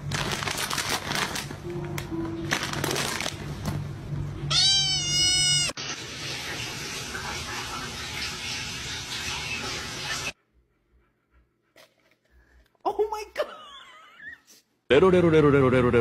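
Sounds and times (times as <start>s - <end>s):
cat meowing: 4.5s - 5.8s.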